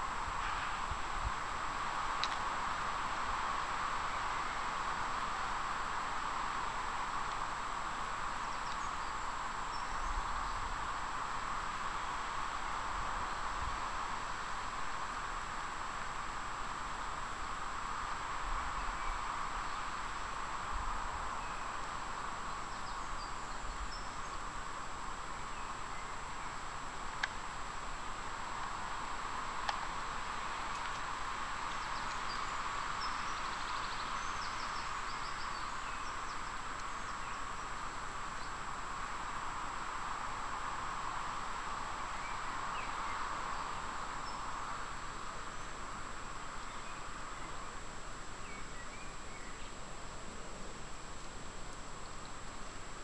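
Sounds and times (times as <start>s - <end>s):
river rushing hiss: 0.0s - 53.0s
faint bird chirps: 8.4s - 10.7s, 18.7s - 20.3s, 21.3s - 24.5s, 25.4s - 26.7s, 30.2s - 38.6s, 42.0s - 47.8s, 48.4s - 49.8s.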